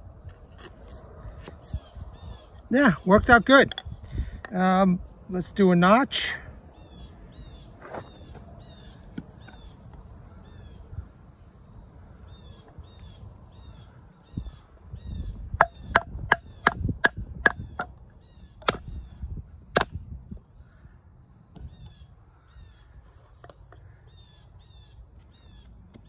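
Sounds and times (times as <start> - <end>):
bird calling: 6.0 - 19.8.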